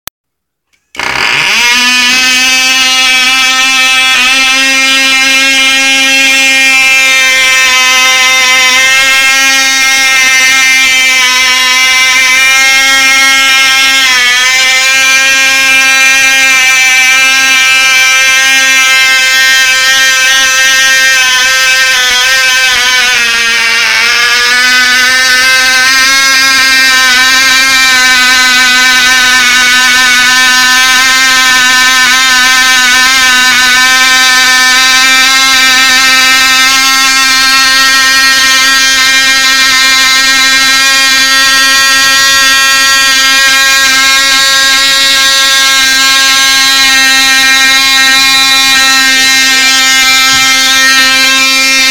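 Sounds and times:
model engine high-pitched buzz: 0.7 - 51.9.

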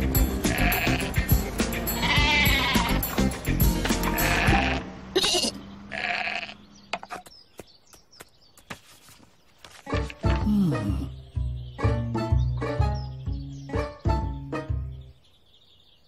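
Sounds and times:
background music: 0.0 - 5.0, 9.8 - 15.3
cartoon sheep bleating: 0.4 - 1.3, 2.0 - 3.0, 4.0 - 6.6.

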